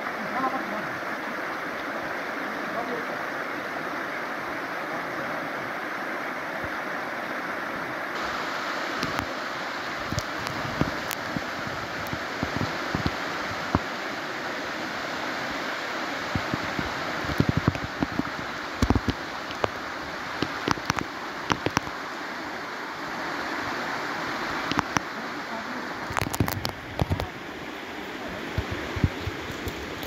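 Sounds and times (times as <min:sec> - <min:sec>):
stream rushing over stones: 0:00.0 - 0:30.0
sharp clicks and knocks: 0:18.8 - 0:19.8, 0:20.4 - 0:21.9.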